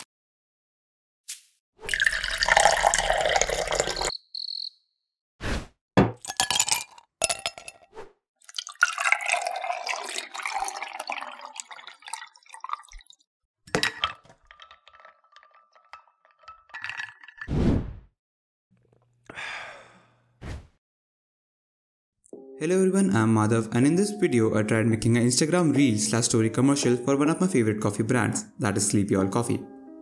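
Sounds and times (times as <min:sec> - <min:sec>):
liquid pouring into glass: 0:01.8 - 0:04.2, 0:06.2 - 0:07.7, 0:08.4 - 0:17.5
ice clinking against glass: 0:01.9 - 0:04.1, 0:06.2 - 0:07.8, 0:08.5 - 0:13.1, 0:13.7 - 0:17.5.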